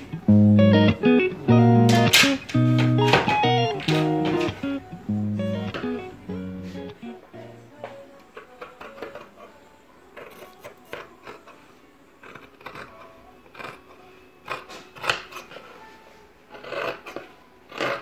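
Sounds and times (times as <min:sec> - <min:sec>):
shears snipping fabric: 0:14.5 - 0:15.8, 0:16.5 - 0:18.0.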